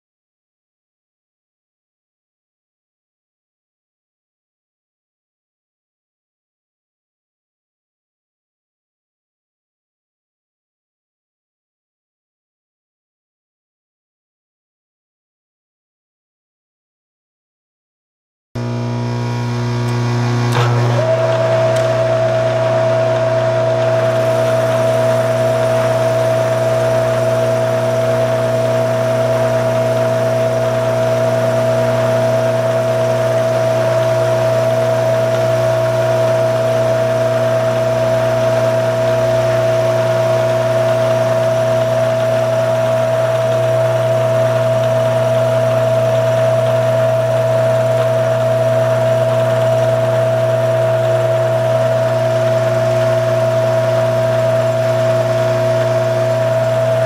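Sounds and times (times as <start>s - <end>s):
milling machine hum and whine: 18.6s - 57.0s.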